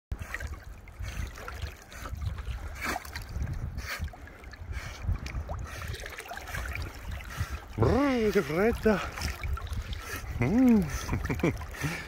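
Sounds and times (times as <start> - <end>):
water lapping and splashing: 0.1 - 12.0
wind rumble on microphone: 0.1 - 12.0.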